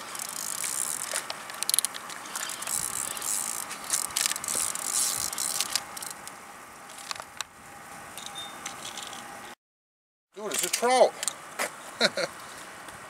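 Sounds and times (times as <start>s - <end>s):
fishing reel whirring and ratcheting: 0.0s - 6.3s.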